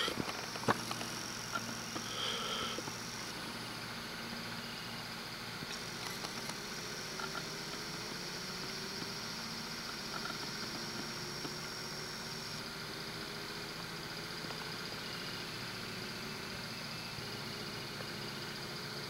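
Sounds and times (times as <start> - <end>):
distant engine rumble: 0.0 - 15.2
faint high whine: 0.0 - 19.0.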